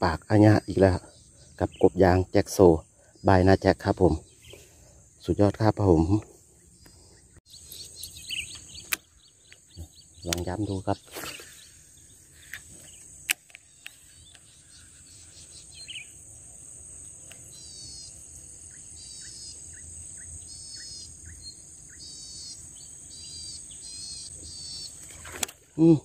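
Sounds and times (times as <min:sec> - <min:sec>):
bird chirping: 0:00.0 - 0:26.0
sharp clicks: 0:08.5 - 0:09.6, 0:10.2 - 0:10.5, 0:12.5 - 0:14.5
high-pitched insect drone: 0:09.6 - 0:25.2.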